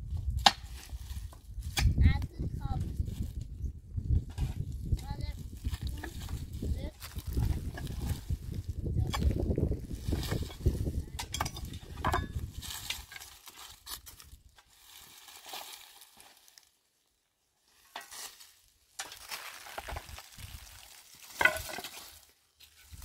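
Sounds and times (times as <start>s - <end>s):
pick striking earth and stones: 0.0s - 3.0s, 4.1s - 16.6s, 17.8s - 23.0s
hands scrabbling through gravelly soil: 18.0s - 23.0s.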